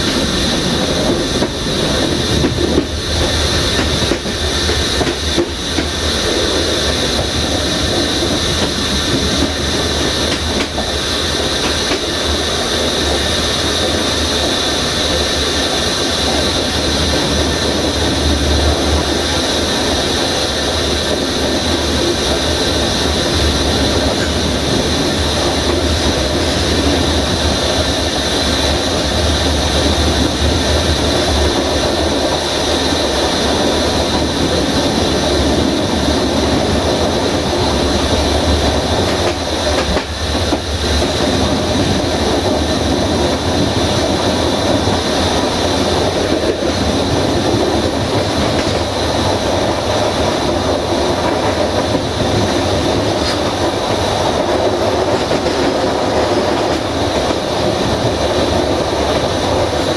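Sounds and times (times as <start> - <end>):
train rumbling: 0.0 - 59.9.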